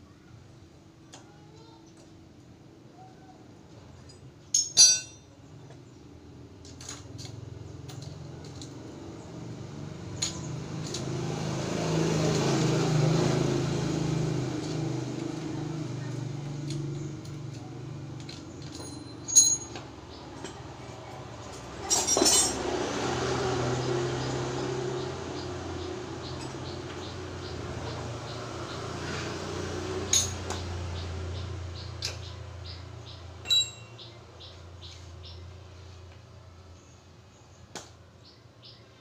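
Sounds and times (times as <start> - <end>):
metal tools clinking: 4.0 - 5.3, 18.1 - 20.7, 21.3 - 22.8, 30.0 - 30.6, 33.4 - 34.0.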